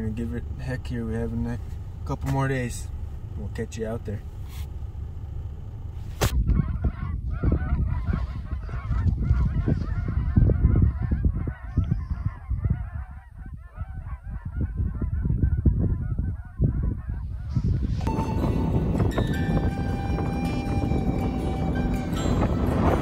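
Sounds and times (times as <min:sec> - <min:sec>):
low uneven rumble: 0:00.0 - 0:23.0
geese honking: 0:06.5 - 0:23.0.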